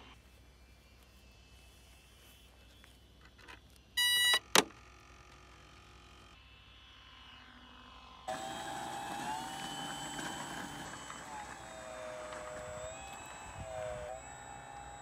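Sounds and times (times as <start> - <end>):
electric motor and propeller running: 0.0 - 15.0
short electronic beep: 4.0 - 4.4.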